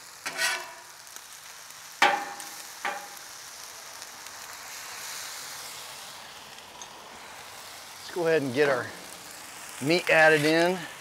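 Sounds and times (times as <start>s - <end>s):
rice sizzling on griddle: 0.0s - 11.0s
metal spatula clanking: 0.2s - 0.9s, 2.0s - 3.2s.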